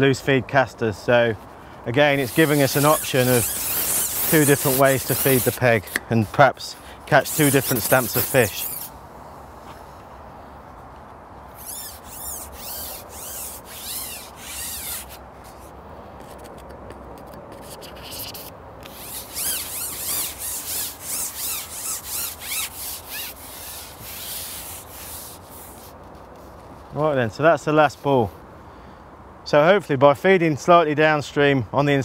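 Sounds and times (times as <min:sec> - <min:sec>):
fishing pole sections rubbing: 0:02.1 - 0:06.0, 0:07.1 - 0:08.9, 0:11.5 - 0:26.6.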